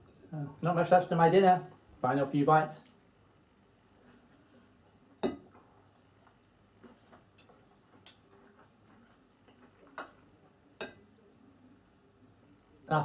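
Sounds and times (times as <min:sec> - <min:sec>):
cutlery clinking on plate: 0:10.8 - 0:11.1.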